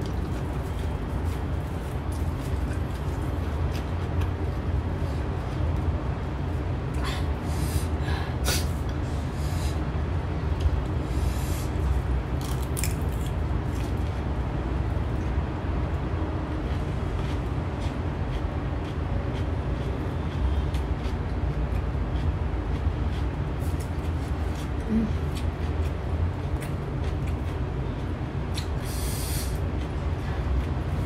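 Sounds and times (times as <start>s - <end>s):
crunchy cucumber chewing: 0.0s - 5.8s, 11.8s - 15.4s, 16.5s - 31.0s
steady low hum: 0.0s - 31.0s.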